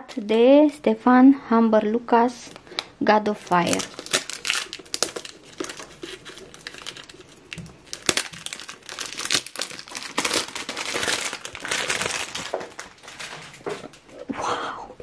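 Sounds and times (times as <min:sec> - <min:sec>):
plastic wrap crinkling: 0:02.3 - 0:14.2.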